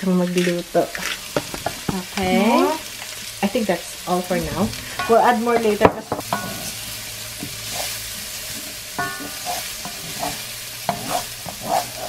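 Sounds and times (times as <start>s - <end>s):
onion and garlic sizzling in pan: 0.0s - 12.0s
wooden spoon scraping and tapping pan: 0.4s - 2.3s, 8.5s - 12.0s.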